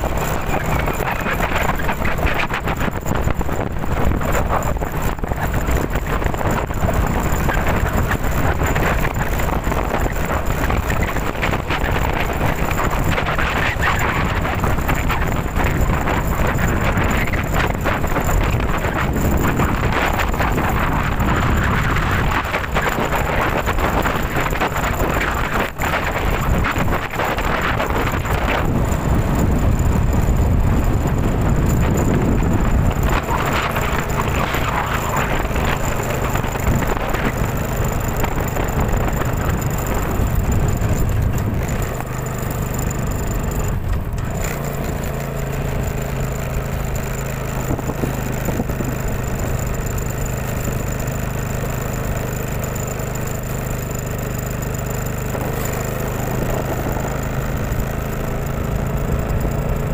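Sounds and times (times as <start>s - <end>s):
storm wind and rain: 0.0s - 44.9s
wind buffeting microphone: 0.0s - 52.4s, 53.6s - 59.9s.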